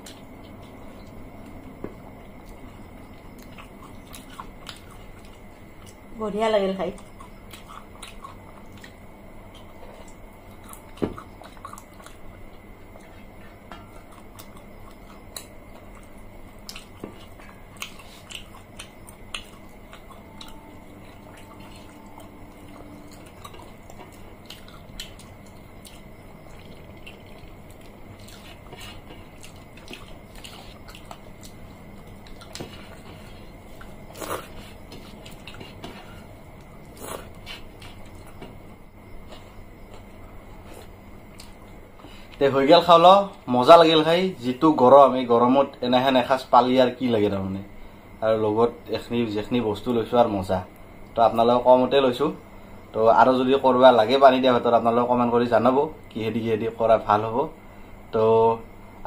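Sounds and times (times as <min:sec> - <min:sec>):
chewing: 0:00.0 - 0:06.1, 0:06.9 - 0:42.4
fingers mixing wet rice on plates: 0:13.0 - 0:38.6.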